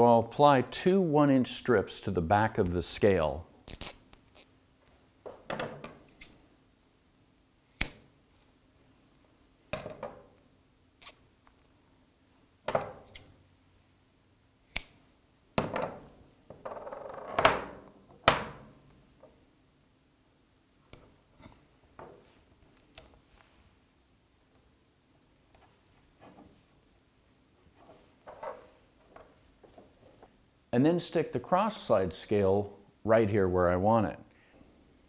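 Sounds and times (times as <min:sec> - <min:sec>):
tape peeling rasps: 0:03.6 - 0:04.5, 0:11.0 - 0:11.2
scissors snipping tape: 0:07.8 - 0:08.0, 0:14.7 - 0:15.0.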